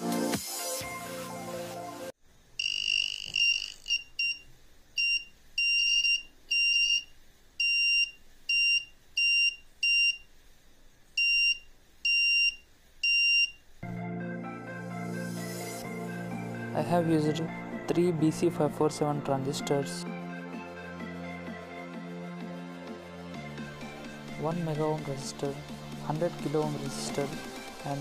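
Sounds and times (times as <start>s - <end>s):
high steady buzzer beeps: 2.6s - 4.4s, 5.0s - 10.3s, 11.2s - 13.6s.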